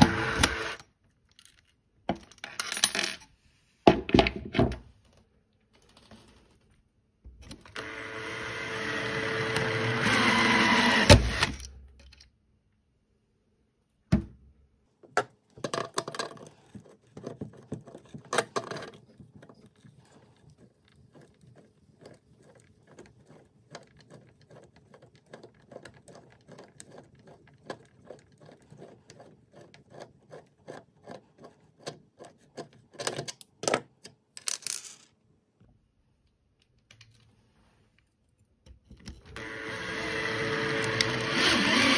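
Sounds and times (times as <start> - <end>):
power drill running: 0.0 - 0.8, 7.7 - 11.7, 39.3 - 41.9.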